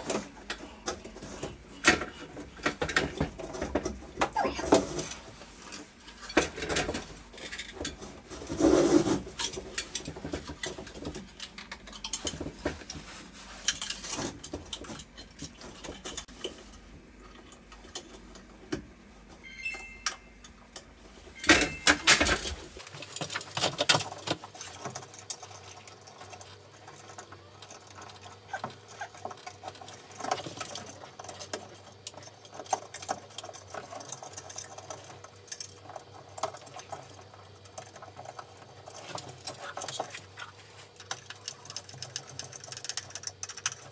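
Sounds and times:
hands rustling and scraping: 0:07.2 - 0:16.9.

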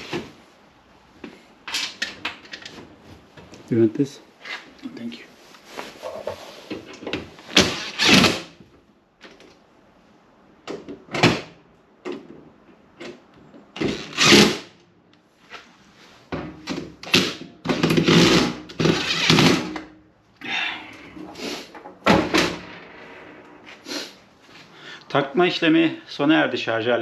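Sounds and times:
drill driving screws into metal: 0:17.1 - 0:19.8.

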